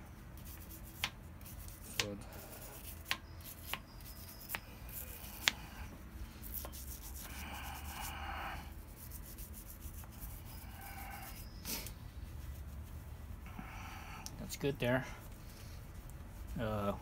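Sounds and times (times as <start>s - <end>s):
brush tapping: 0.4s - 2.2s, 2.8s - 5.6s
brush scratchy rubbing: 0.4s - 13.6s, 14.4s - 17.0s.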